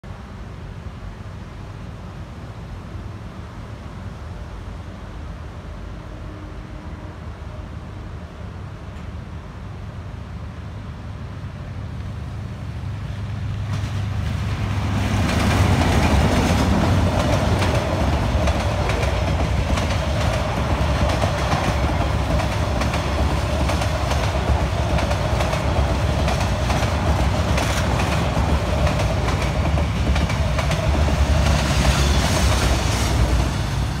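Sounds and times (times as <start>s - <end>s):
locomotive rumble: 11.7s - 34.0s
train wheels clickety-clack: 13.1s - 34.0s.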